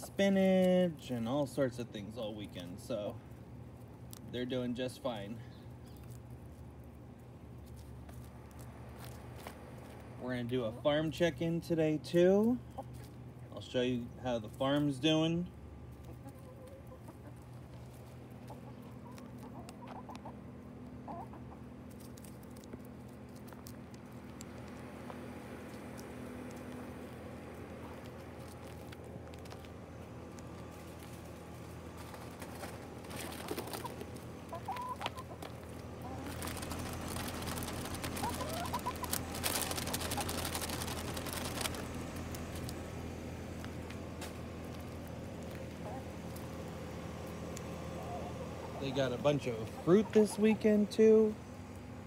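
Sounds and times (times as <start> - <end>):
chickens pecking and scratching: 0.0 - 52.0
chickens clucking softly: 15.9 - 22.4, 32.0 - 40.9, 45.3 - 46.6, 47.4 - 51.1
soft hen chirps: 33.1 - 36.9, 38.0 - 40.4.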